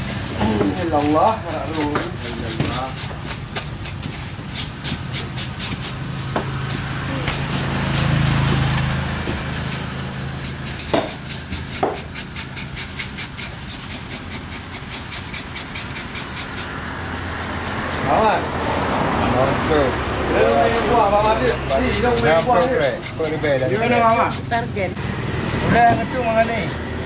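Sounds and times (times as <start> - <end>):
knife chopping on wooden block: 0.4 - 9.8, 10.4 - 16.6.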